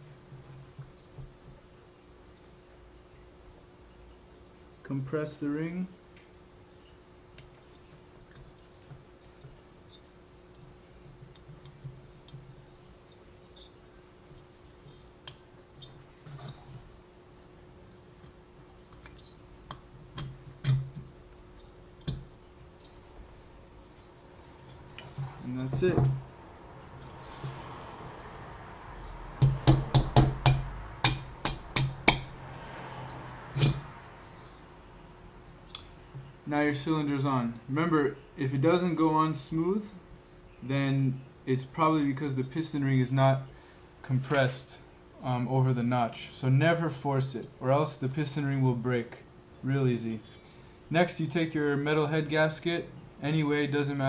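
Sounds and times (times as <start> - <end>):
faint clicks and metal taps: 7.3 - 16.8
sharp metallic knocks: 29.4 - 32.4, 33.5 - 34.0.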